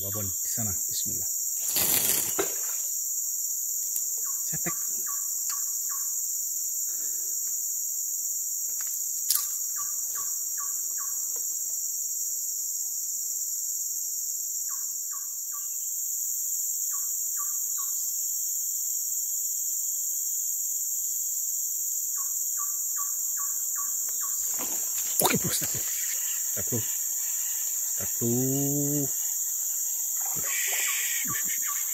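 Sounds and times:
insects droning: 0:00.0 - 0:31.9
quick call notes: 0:24.5 - 0:29.2.

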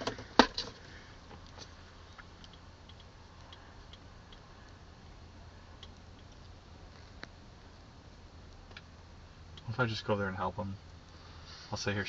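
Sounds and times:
faint low hum: 0:00.0 - 0:12.0
faint ticks and clicks: 0:01.3 - 0:04.8, 0:05.8 - 0:07.4.

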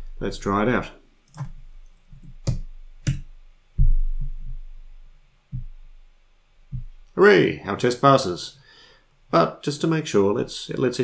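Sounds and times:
dull low thumps: 0:02.2 - 0:07.1.

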